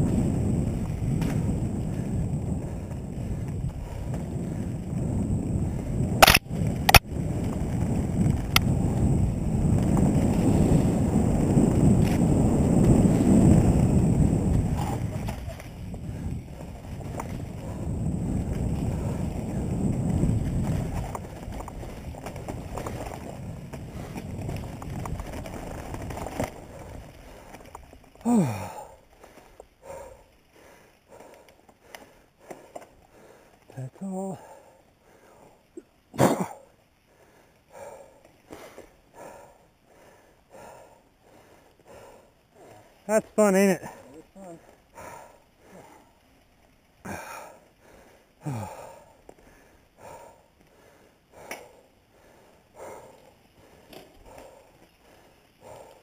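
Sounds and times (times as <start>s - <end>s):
bike rattling over dirt trail: 0.0s - 56.0s
sharp clicks: 6.2s - 7.1s
person breathing hard: 26.7s - 35.9s, 36.5s - 43.1s, 43.8s - 46.3s, 47.0s - 56.0s.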